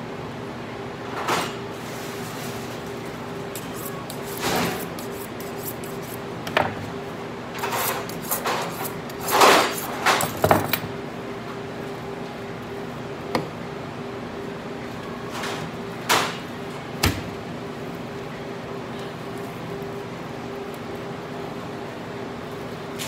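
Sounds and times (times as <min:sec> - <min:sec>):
steady hum: 0:01.9 - 0:14.8
knife scraping on sharpening steel: 0:03.5 - 0:06.2, 0:07.6 - 0:09.9.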